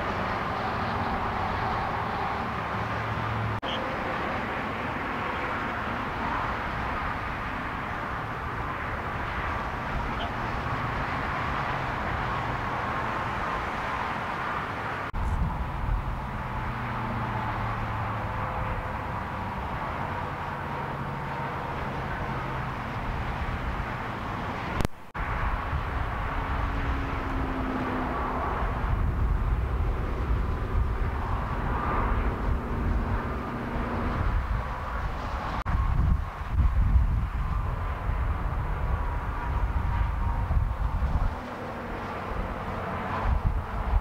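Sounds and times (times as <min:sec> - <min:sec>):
road traffic rumble: 0:00.0 - 0:44.0.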